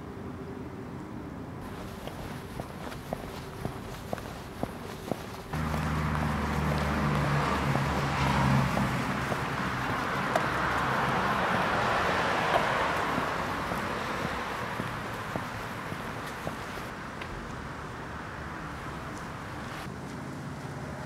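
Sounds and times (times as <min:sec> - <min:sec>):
rushing traffic noise: 0:00.0 - 0:21.0
low engine hum: 0:01.6 - 0:16.9.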